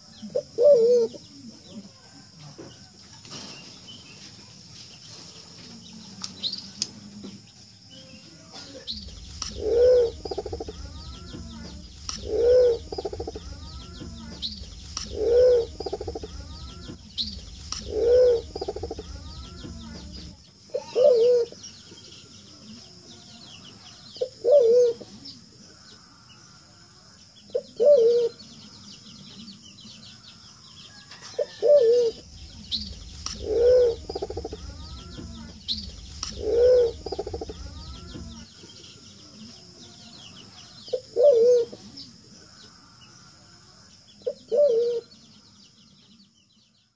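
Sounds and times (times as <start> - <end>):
pigeon cooing: 0.2 - 1.2, 9.5 - 14.4, 15.0 - 16.9, 17.8 - 20.0, 20.7 - 21.6, 24.2 - 25.2, 27.5 - 28.4, 31.3 - 32.2, 32.8 - 35.4, 36.2 - 38.4, 40.9 - 41.9, 44.2 - 45.1.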